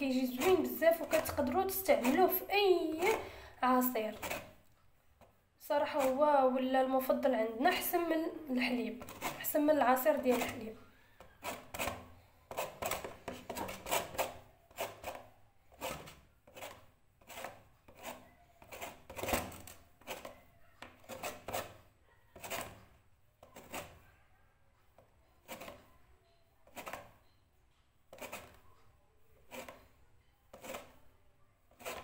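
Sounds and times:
lemon scraping on metal grater: 0:00.0 - 0:04.6, 0:05.8 - 0:21.8, 0:22.4 - 0:24.0, 0:25.4 - 0:25.9, 0:26.7 - 0:27.2, 0:28.1 - 0:28.6, 0:29.4 - 0:29.9, 0:30.5 - 0:31.0, 0:31.7 - 0:32.0.

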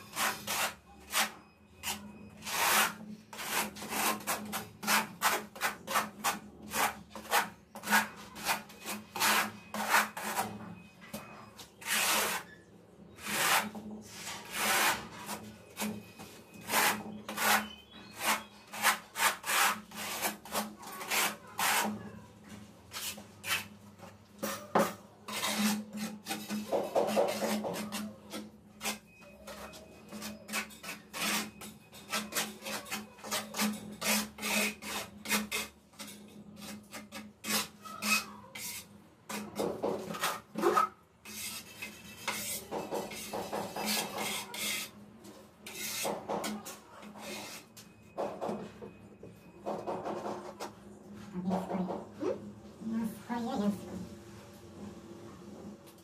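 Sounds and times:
trowel scraping adhesive on tile: 0:00.0 - 0:10.6, 0:11.2 - 0:22.0, 0:22.9 - 0:23.8, 0:24.8 - 0:45.0, 0:45.6 - 0:47.8.

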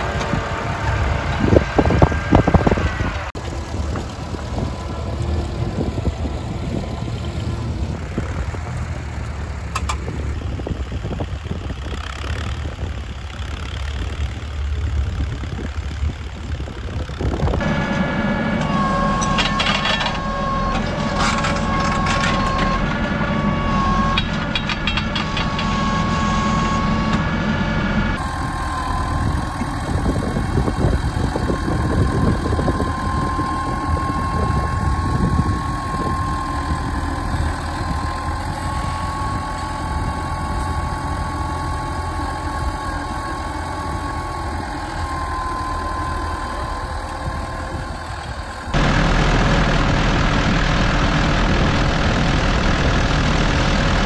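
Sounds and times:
tractor diesel engine running: 0:00.0 - 0:54.0
plough rattles and clanks: 0:18.6 - 0:27.3, 0:28.2 - 0:51.0.

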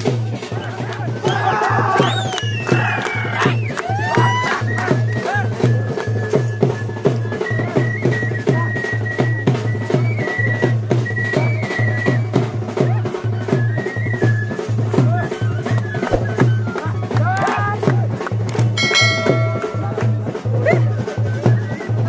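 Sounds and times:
drums beating a quick rhythm: 0:14.5 - 0:22.0.

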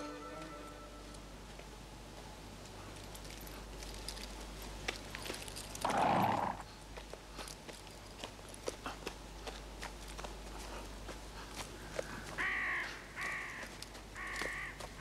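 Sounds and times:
horse hooves clopping: 0:00.0 - 0:15.0
horse breathy snort: 0:05.8 - 0:06.7.

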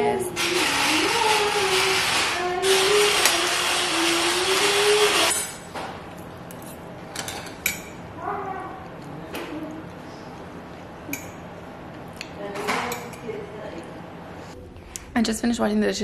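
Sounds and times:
loud whirring noise: 0:00.0 - 0:05.7.

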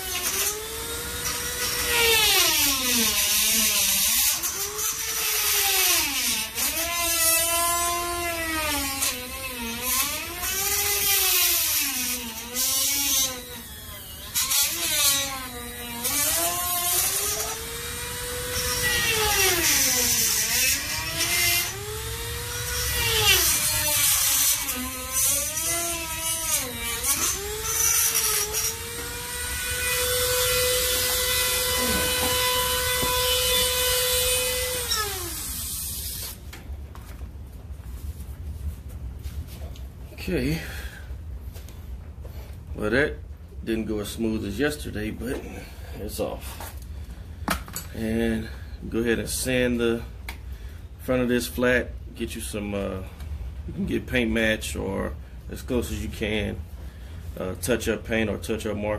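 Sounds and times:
electric cutting tool on metal: 0:00.0 - 0:36.4.

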